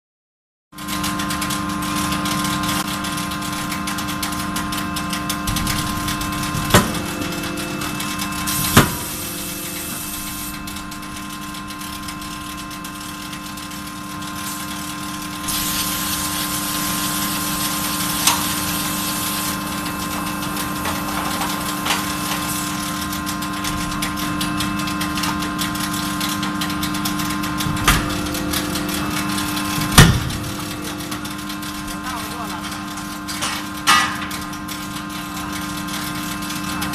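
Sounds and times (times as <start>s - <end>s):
hydraulic power unit hum: 0.8s - 36.9s
hiss: 15.5s - 19.5s.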